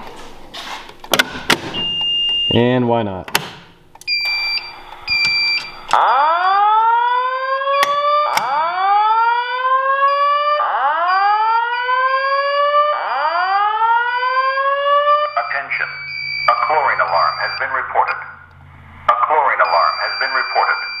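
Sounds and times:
steady high beep: 1.8 - 2.7, 15.3 - 18.4, 19.1 - 21.0.

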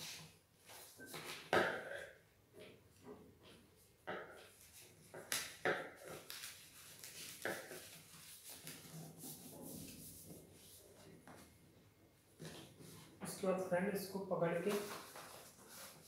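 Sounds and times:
paper folding and crinkling: 4.6 - 11.5, 14.6 - 16.0
paper crackles: 14.6 - 16.0.

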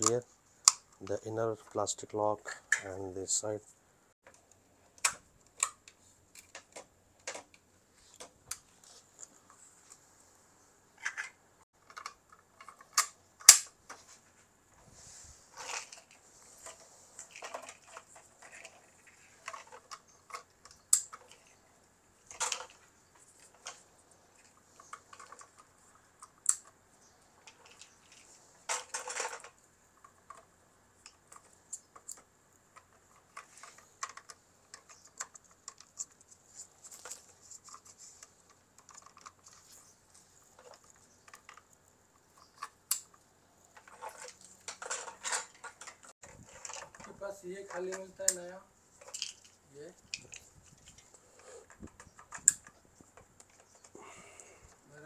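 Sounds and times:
rustling: 0.0 - 55.0.

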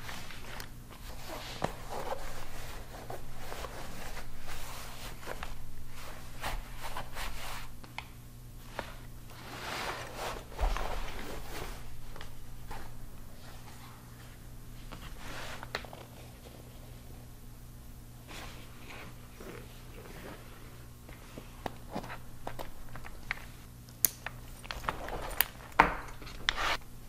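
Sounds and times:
heavy fabric rustling and scraping: 0.0 - 7.8, 8.6 - 16.6
faint low hum: 0.0 - 27.0.

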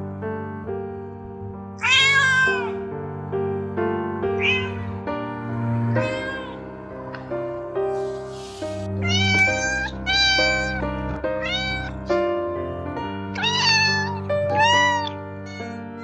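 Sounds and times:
background music with sustained notes: 0.0 - 16.0
cat meowing: 1.8 - 2.8, 4.4 - 5.0, 5.9 - 6.6, 9.0 - 12.1, 13.3 - 16.0.

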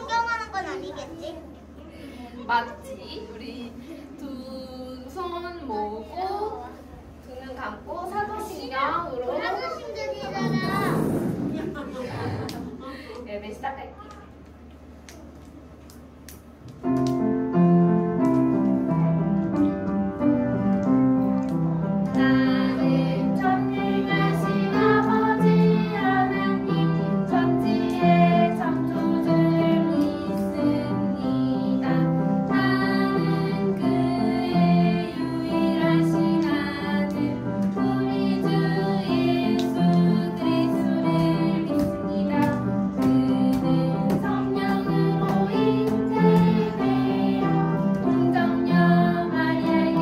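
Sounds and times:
women and children singing: 3.4 - 6.2, 22.0 - 50.0
piano accompaniment: 16.5 - 50.0.

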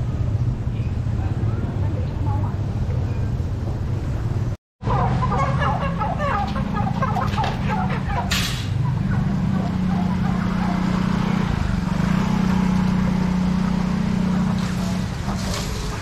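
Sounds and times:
ducks quacking: 4.8 - 11.4
chickens clucking: 4.8 - 11.6.

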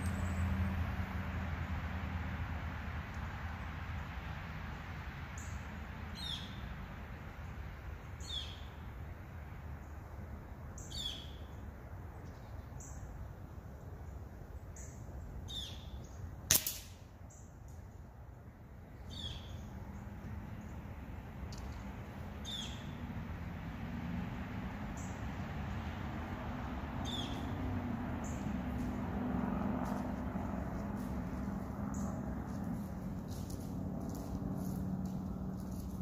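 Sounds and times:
steady outdoor rumble: 0.0 - 36.0
air rifle shot: 16.5 - 17.0
birds chirping: 21.6 - 23.1, 27.0 - 29.0, 30.8 - 33.6.

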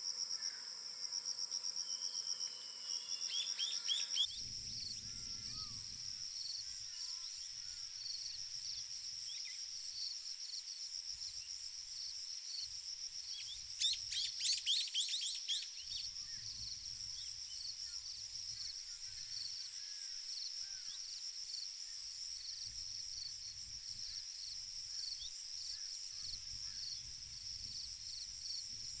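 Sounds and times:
insects pulsing shrill drone: 0.2 - 11.7, 12.5 - 29.0
small bird chirping: 13.3 - 16.5.

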